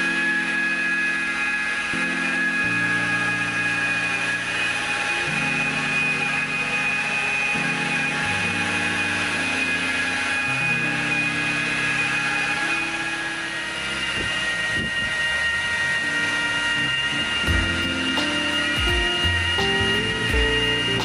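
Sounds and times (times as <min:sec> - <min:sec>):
electric polisher whining: 0:00.0 - 0:21.0
background music with bass: 0:16.9 - 0:21.0.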